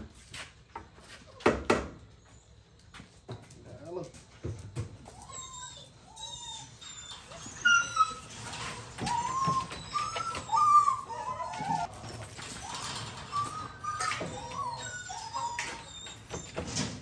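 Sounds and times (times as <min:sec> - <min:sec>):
dogs whining and yelping: 0:04.9 - 0:17.0.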